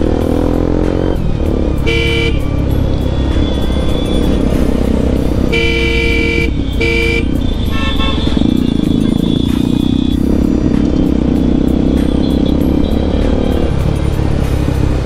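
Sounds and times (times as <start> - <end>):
motorcycle engine rumble: 0.0 - 15.0
two-tone vehicle horn honking: 1.8 - 10.6.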